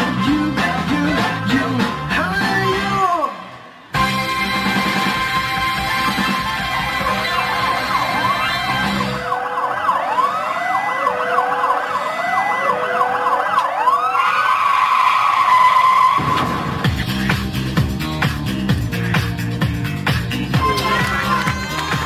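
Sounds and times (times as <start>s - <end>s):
backing music: 0.0s - 9.4s, 16.2s - 22.0s
siren wailing: 4.0s - 16.6s.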